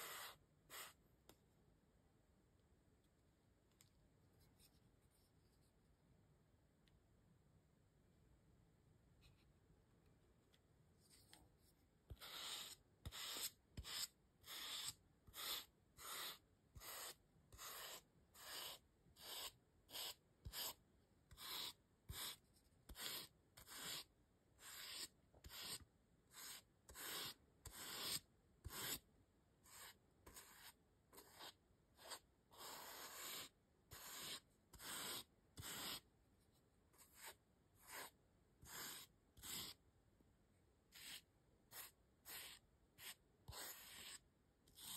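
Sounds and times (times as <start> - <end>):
brush swishing on styrofoam: 0.0 - 1.0, 12.1 - 29.0, 29.7 - 36.1, 37.0 - 39.8, 40.9 - 44.9.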